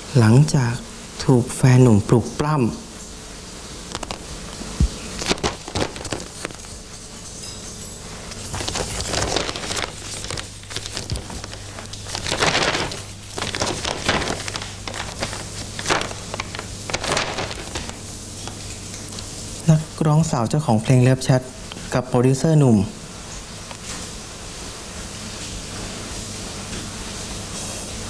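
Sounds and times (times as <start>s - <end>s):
low steady hum: 0.0s - 26.2s
newspaper pages rustling: 3.8s - 7.0s, 8.4s - 18.1s.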